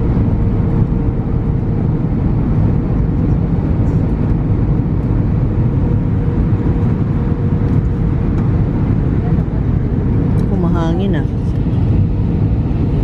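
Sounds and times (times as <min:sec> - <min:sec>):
jet engine and airflow rush: 0:00.0 - 0:13.0.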